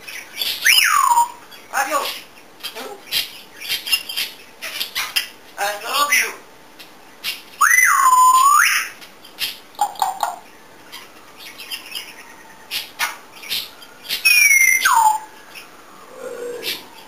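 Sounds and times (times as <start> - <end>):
parrot whistling: 7.6 - 8.9, 14.2 - 15.3.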